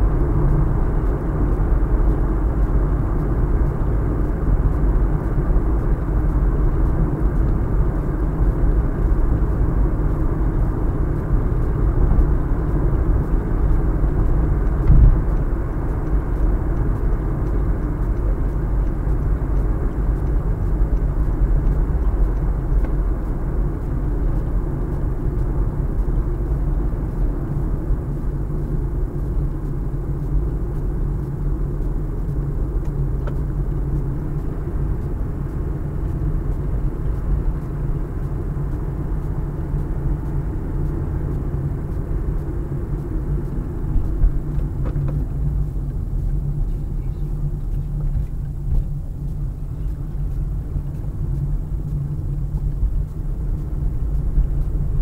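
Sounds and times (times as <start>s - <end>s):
car cabin road and engine rumble: 0.0s - 55.0s.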